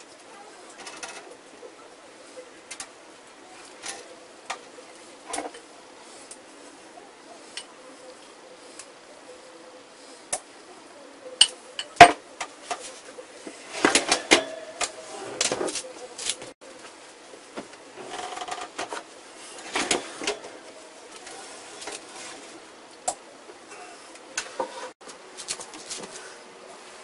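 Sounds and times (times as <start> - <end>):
metal oven rack clinking: 13.7 - 15.4.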